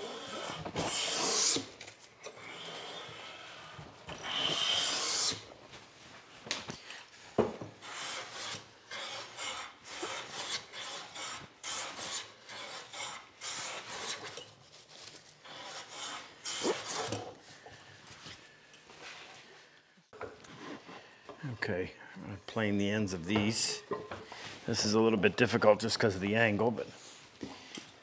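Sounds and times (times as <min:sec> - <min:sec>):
hand plane shaving wood: 0:00.0 - 0:01.7, 0:07.8 - 0:14.4, 0:15.4 - 0:17.3.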